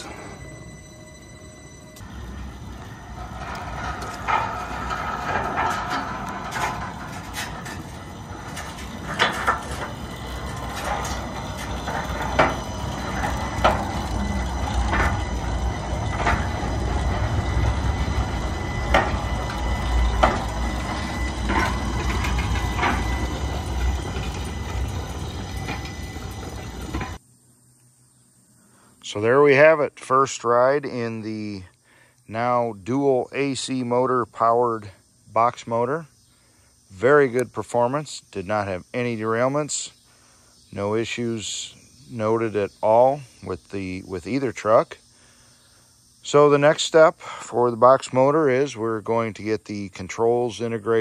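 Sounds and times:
motor car rumbling along track: 0:00.0 - 0:27.2.

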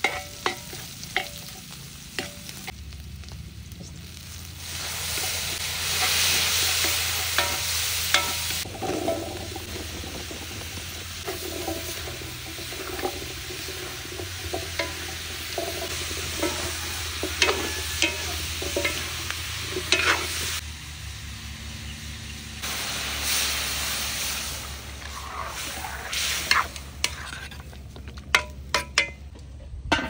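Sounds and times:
utensil knocking and scraping a pan: 0:00.0 - 0:01.6, 0:06.8 - 0:20.6, 0:26.4 - 0:30.0
food sizzling in a pan: 0:00.0 - 0:27.9.

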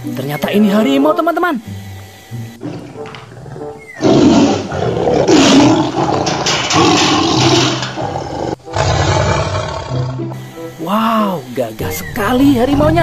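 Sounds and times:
tiger roaring: 0:02.7 - 0:10.4.

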